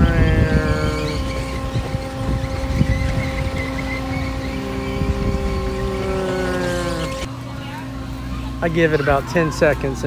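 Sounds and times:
swing ride motor hum: 0:00.0 - 0:10.0.

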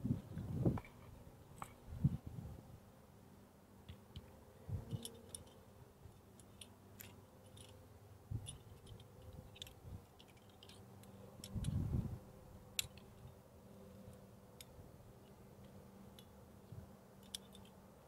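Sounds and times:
carabiners clicking and jingling: 0:04.8 - 0:07.8, 0:08.4 - 0:11.8, 0:17.2 - 0:17.8.

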